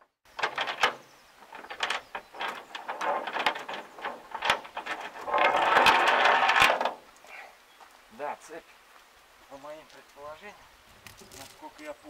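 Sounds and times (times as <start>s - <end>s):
chain rattling slide: 0.4s - 7.0s.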